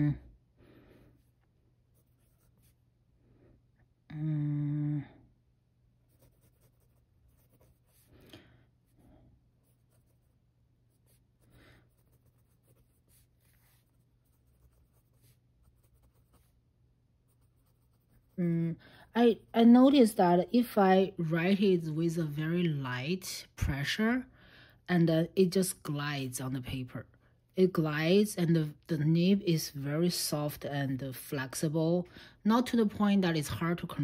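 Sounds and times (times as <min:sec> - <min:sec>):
person humming: 0:04.1 - 0:05.3, 0:18.4 - 0:18.8
pen nib scratching on paper: 0:06.1 - 0:08.1, 0:09.5 - 0:16.6, 0:17.2 - 0:18.4.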